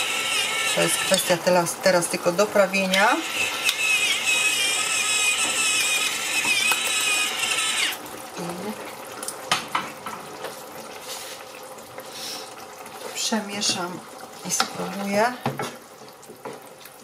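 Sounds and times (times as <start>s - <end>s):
electric spice grinder whining: 0.0s - 8.0s
sauce simmering: 0.0s - 17.0s.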